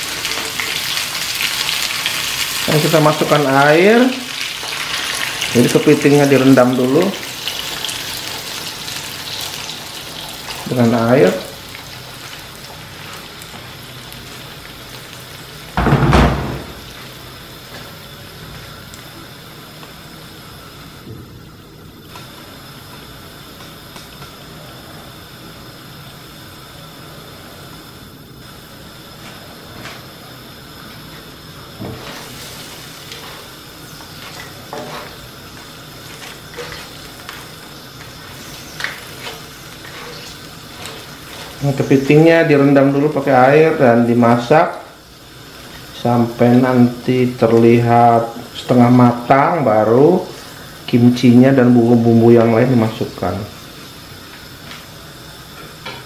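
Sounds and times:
food sizzling in oil: 0:00.0 - 0:56.0
loud thump: 0:15.8 - 0:16.9
wooden spatula scraping wok: 0:31.8 - 0:42.1.

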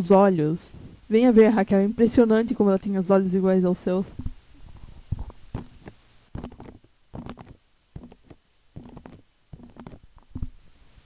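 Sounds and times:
faint high-pitched whine: 0:00.0 - 0:11.0
soft low thumps: 0:04.0 - 0:10.6.

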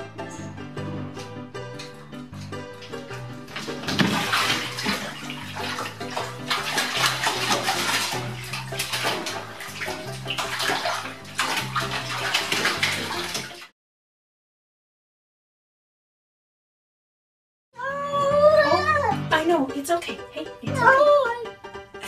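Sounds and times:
background music: 0:00.0 - 0:13.7, 0:17.8 - 0:22.0
water splashing and sloshing: 0:01.0 - 0:13.7.

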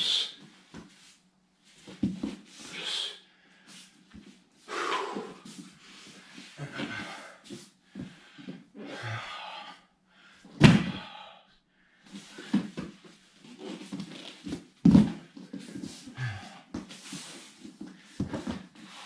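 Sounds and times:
heavy breathing: 0:02.6 - 0:04.0, 0:04.6 - 0:12.8, 0:15.5 - 0:19.0
body thudding on foam mats: 0:10.6 - 0:11.0, 0:13.8 - 0:15.4.

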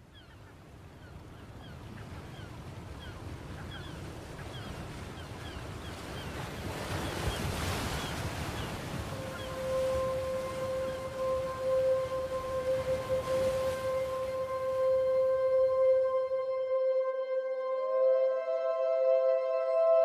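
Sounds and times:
wind and surf noise: 0:00.0 - 0:20.0
birds chirping: 0:00.1 - 0:16.6
held musical tone: 0:09.1 - 0:20.0.

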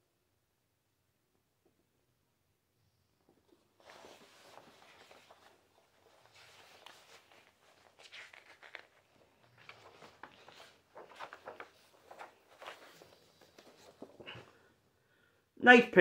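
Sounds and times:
paper pages rustling: 0:03.3 - 0:14.7.

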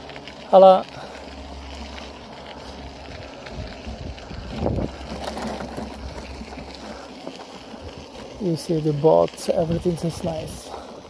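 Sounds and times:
bicycle rattles and clicks: 0:00.0 - 0:11.0
wind rumble on microphone: 0:02.7 - 0:06.8, 0:09.5 - 0:10.8.

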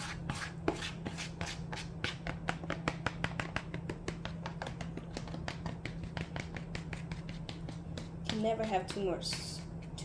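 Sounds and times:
spatula scraping plastic bowl: 0:00.0 - 0:01.9.

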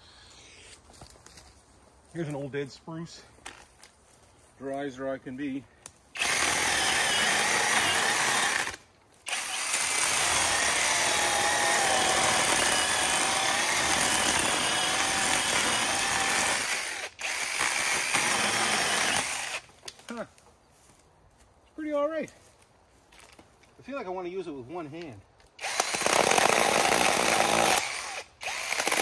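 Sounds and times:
chainsaw cutting log: 0:06.2 - 0:19.7, 0:25.6 - 0:29.0.

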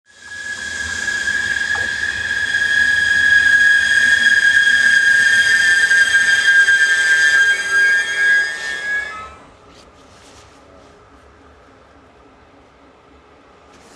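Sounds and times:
train brakes squealing: 0:00.1 - 0:09.5.

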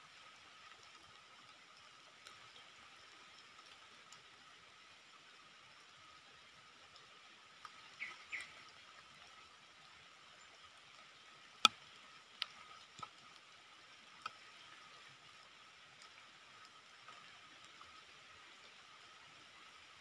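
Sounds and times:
insect hum: 0:00.0 - 0:20.0
soft chirps: 0:07.8 - 0:08.7.

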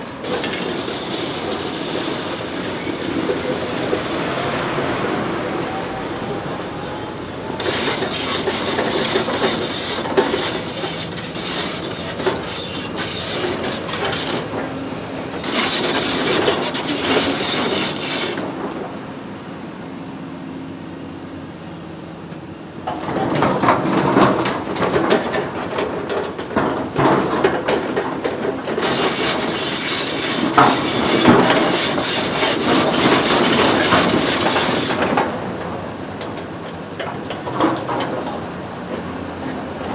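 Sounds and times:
steel rails scraping and clanking: 0:00.0 - 0:18.9, 0:22.9 - 0:39.9
diesel hum: 0:00.0 - 0:27.1.

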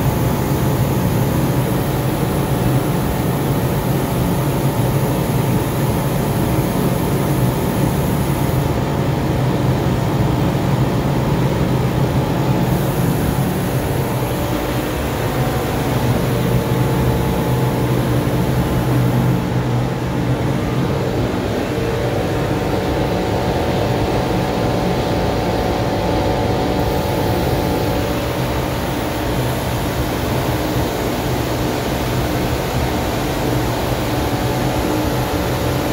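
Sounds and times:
spray gun hissing: 0:00.0 - 0:08.7, 0:12.5 - 0:20.2, 0:26.8 - 0:32.1
steady mechanical drone: 0:00.0 - 0:35.9.

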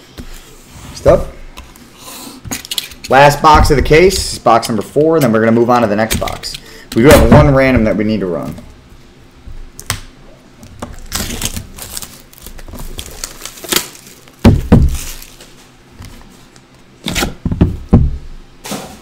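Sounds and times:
plastic wrap rustling: 0:10.6 - 0:16.6
cardboard box thumps: 0:14.4 - 0:15.0.

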